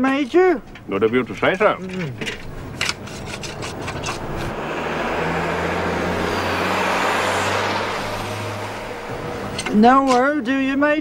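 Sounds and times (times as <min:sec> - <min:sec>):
vehicle passing by: 0:03.0 - 0:09.8.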